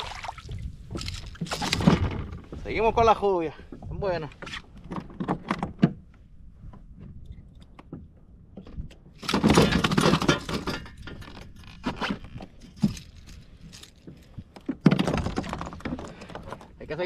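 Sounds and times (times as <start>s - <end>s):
fishing tackle rattling: 0.9s - 2.5s, 9.2s - 16.8s.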